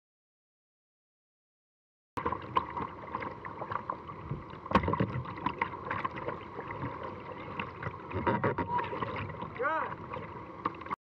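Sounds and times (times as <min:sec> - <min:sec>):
water knocking against kayak hull: 0:04.2 - 0:06.2, 0:07.8 - 0:09.4.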